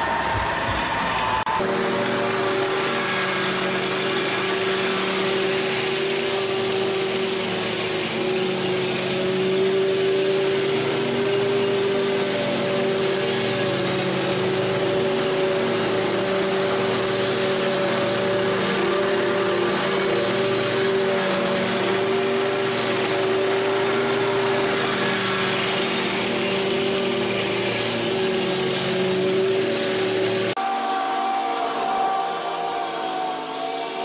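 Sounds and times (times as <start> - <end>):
lawn mower engine and blades: 0.0 - 34.0.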